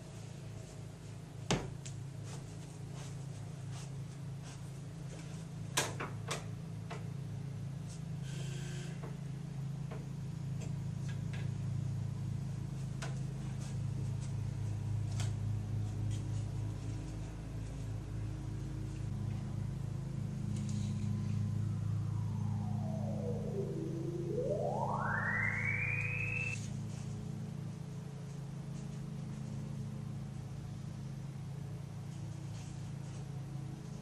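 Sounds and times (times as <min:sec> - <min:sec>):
steady low hum: 0:08.9 - 0:34.0.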